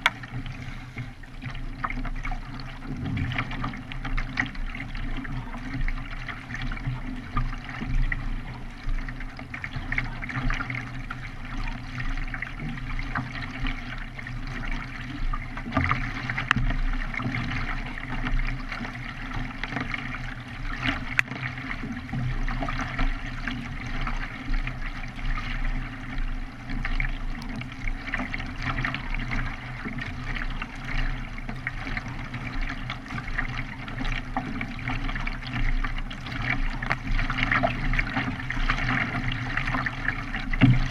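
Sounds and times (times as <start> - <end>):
paddle blades dipping in water: 0.0 - 40.9
water splashing and rushing: 0.0 - 40.9.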